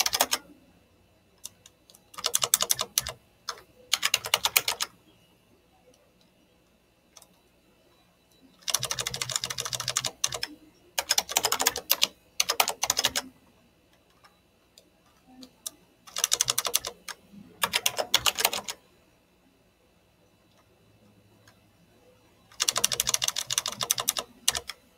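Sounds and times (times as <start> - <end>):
computer keyboard typing: 0.0 - 0.6, 1.4 - 4.9, 8.6 - 13.3, 14.8 - 18.8, 22.5 - 24.8.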